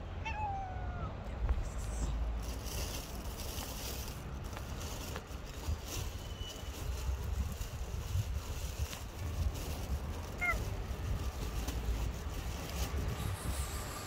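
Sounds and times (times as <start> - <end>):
cat meowing: 0.2 - 1.2, 10.4 - 10.6.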